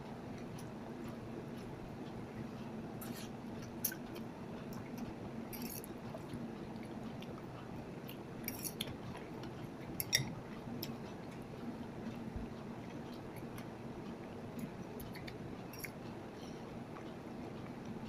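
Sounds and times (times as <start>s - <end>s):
faint low hum: 0.0s - 18.0s
chewing: 3.0s - 16.0s
fork clicking against bowl: 5.5s - 5.9s, 8.4s - 9.0s, 10.0s - 10.3s, 15.0s - 16.0s.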